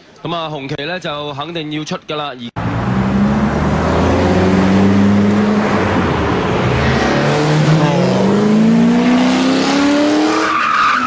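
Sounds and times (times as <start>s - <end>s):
sports car engines accelerating: 2.6s - 10.6s.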